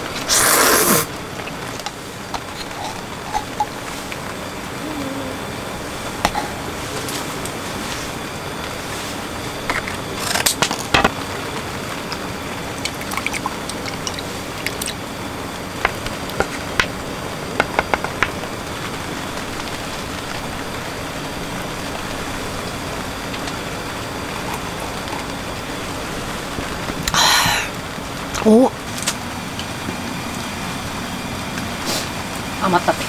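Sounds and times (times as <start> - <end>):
steady hiss: 14.2 - 33.0.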